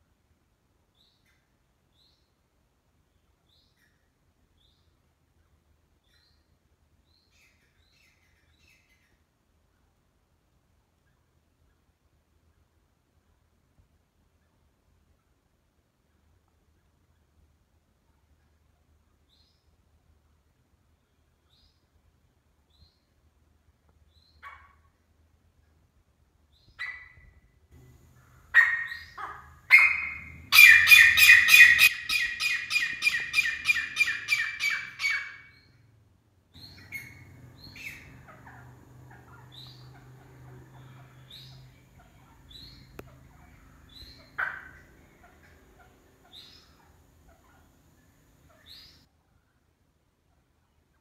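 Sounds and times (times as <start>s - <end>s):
francolin calling: 27.8s - 35.7s, 36.6s - 49.0s.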